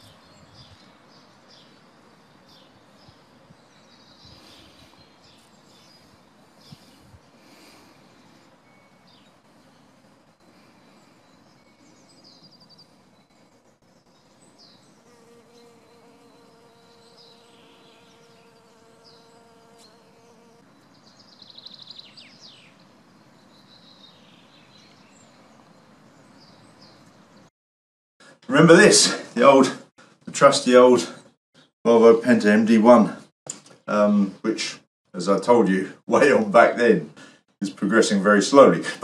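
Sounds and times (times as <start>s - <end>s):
birdsong chirps: 0.0s - 27.5s
honeybee buzzing: 14.6s - 20.7s.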